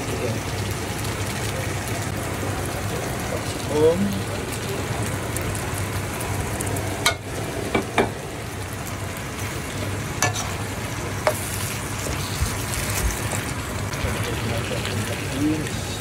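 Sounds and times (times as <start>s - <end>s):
peppers sizzling in wok: 0.0s - 16.0s
spatula knocking on pan: 7.0s - 8.2s.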